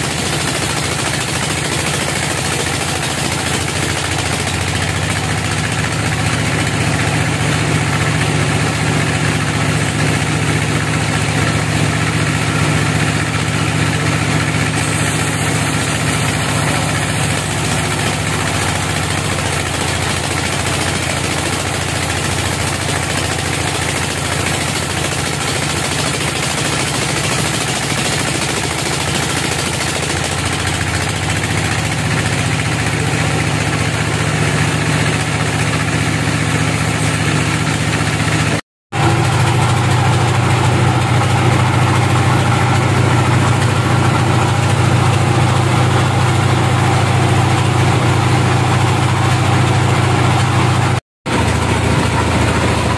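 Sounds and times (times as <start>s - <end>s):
band saw cutting log: 0.0s - 52.9s.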